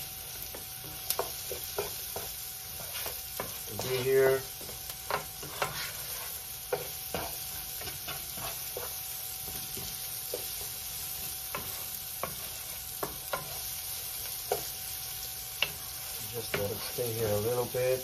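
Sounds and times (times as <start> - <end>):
onion and garlic sizzling in oil: 0.0 - 18.0
wooden spatula tapping pan: 0.4 - 5.8.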